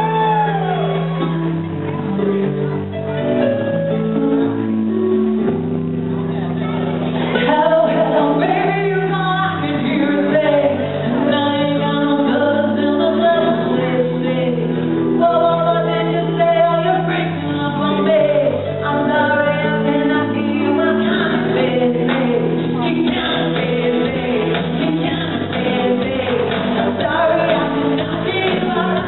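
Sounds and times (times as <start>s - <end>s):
bass line: 0.0s - 14.4s, 15.0s - 29.0s
woman singing into a microphone: 7.3s - 29.0s.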